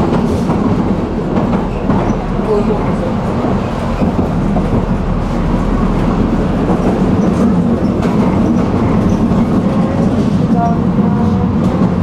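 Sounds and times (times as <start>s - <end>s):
tram wheels rumbling on rails: 0.0s - 12.0s.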